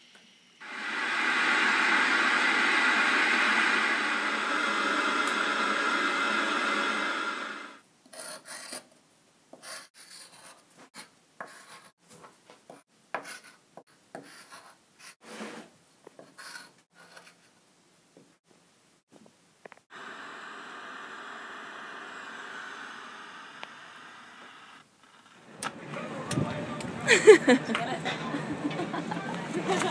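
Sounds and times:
tv static hiss: 0.0s - 7.8s, 19.9s - 26.9s, 29.3s - 29.9s.

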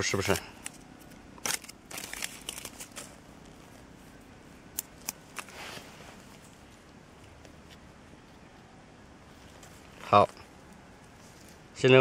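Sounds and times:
dry leaves crackling and rustling: 1.4s - 4.1s.

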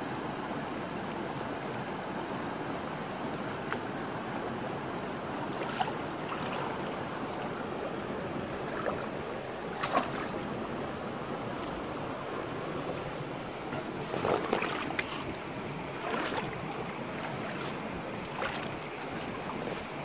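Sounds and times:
shallow stream rushing: 0.0s - 20.0s
hands splashing in water: 9.8s - 10.4s, 13.8s - 20.0s.

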